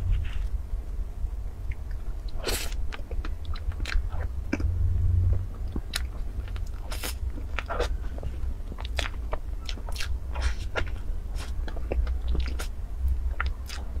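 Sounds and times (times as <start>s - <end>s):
steady low hum: 0.0s - 14.0s
wet chewing mouth sounds: 5.7s - 13.9s.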